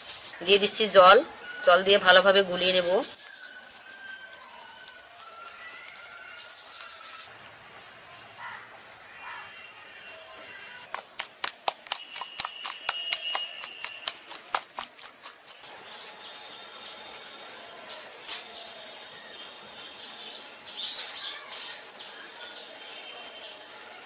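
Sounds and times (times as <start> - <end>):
birds chirping: 0.0 - 7.3
batter slapping in steel bowl: 10.9 - 15.6.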